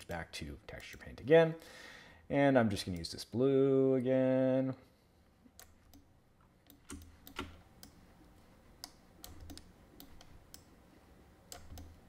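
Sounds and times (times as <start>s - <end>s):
mouse and keyboard clicking: 8.8s - 10.7s.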